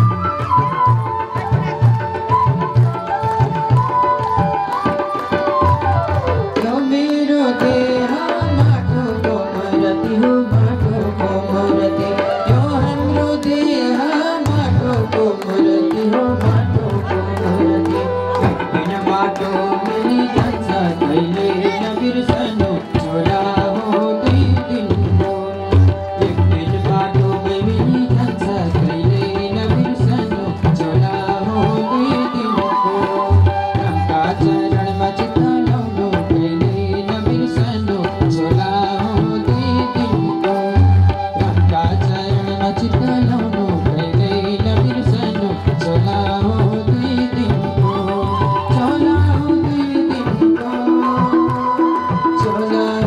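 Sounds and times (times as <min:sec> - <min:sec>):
harmonium: 0:00.0 - 0:53.0
tabla drumming: 0:00.0 - 0:53.0
congregation clapping: 0:14.9 - 0:21.7.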